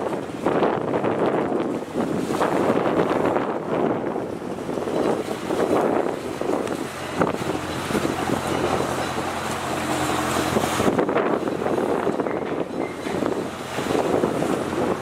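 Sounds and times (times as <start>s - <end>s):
choppy river water: 0.0s - 15.0s
wind buffeting microphone: 0.0s - 15.0s
low engine hum: 4.2s - 15.0s.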